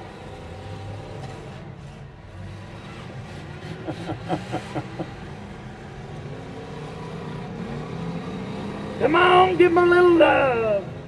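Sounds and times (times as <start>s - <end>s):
car engines running: 0.0s - 11.0s.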